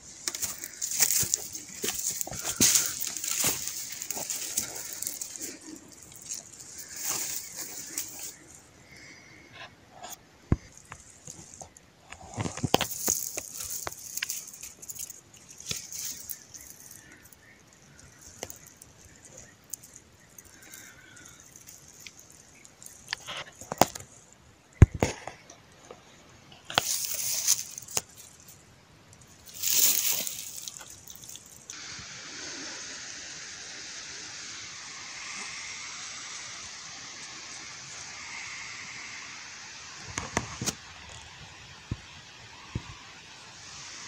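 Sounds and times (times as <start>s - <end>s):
undergrowth rustling and snapping: 0.0s - 9.3s, 10.5s - 25.5s, 26.7s - 31.8s
steady hiss: 0.0s - 44.0s.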